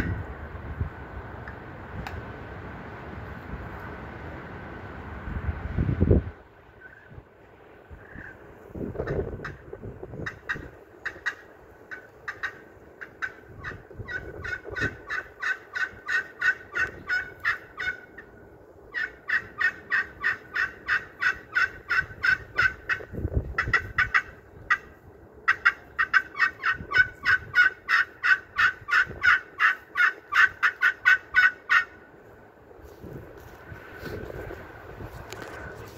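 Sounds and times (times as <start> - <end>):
turkey friction call notes: 10.2 - 32.0.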